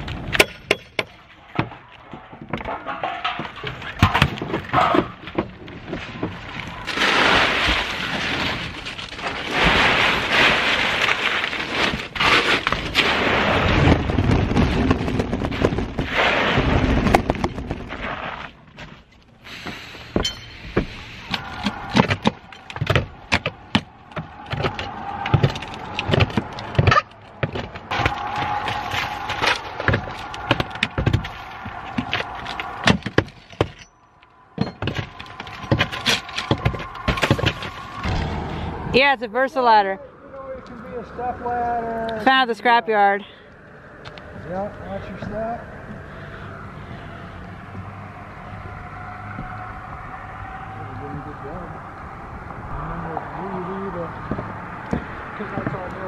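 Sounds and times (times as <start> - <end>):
shingles cracking and clattering: 0.0 - 19.3, 20.7 - 38.2
heavy scraping and rustling: 1.7 - 39.8.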